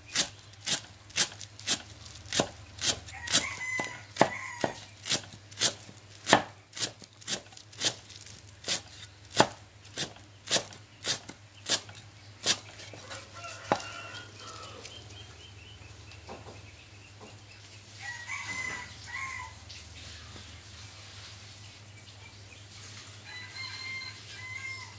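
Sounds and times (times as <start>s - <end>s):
cleaver chopping on wooden block: 0.2s - 8.0s, 8.7s - 12.7s.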